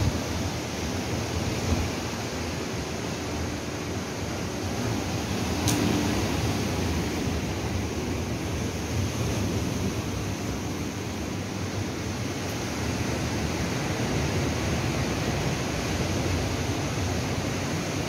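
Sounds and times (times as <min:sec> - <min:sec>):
ocean surf breaking: 0:00.0 - 0:11.4.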